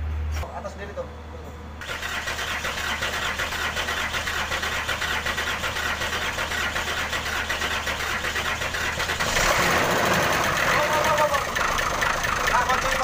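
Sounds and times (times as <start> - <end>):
diesel truck engine idling: 0.1 - 13.0.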